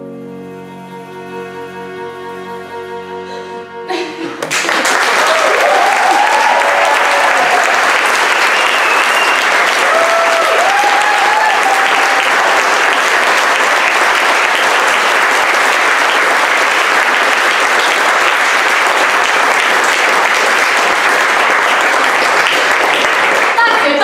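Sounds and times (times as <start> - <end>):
audience applauding: 4.4 - 24.0
person whooping: 5.1 - 7.9, 8.7 - 12.6.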